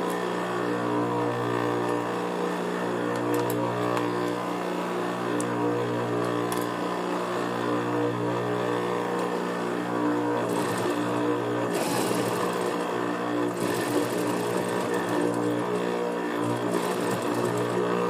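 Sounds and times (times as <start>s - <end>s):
sewing machine motor humming: 9.1s - 18.0s
sewing machine stitching: 10.4s - 18.0s.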